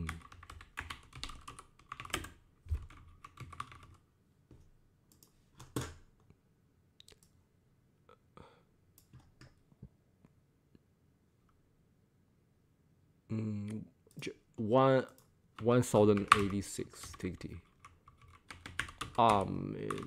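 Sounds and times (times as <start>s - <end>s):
typing on computer keyboard: 0.0s - 4.0s, 5.1s - 6.0s, 15.6s - 20.0s.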